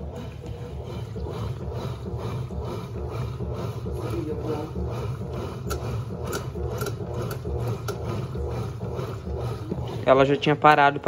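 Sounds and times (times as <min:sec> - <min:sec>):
washing machine agitating: 0:00.0 - 0:11.0.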